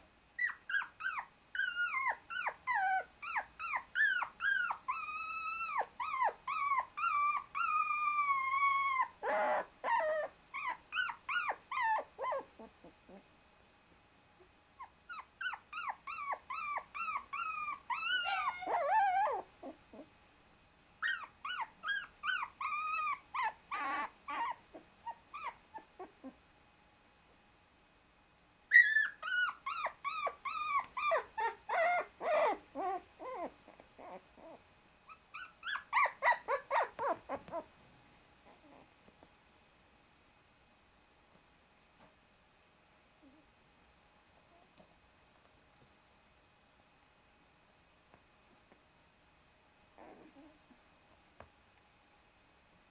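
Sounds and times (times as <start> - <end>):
puppy whimpering and crying: 0.4 - 13.3, 14.8 - 20.1, 21.0 - 26.4, 28.7 - 37.7, 38.4 - 38.9, 50.0 - 50.8.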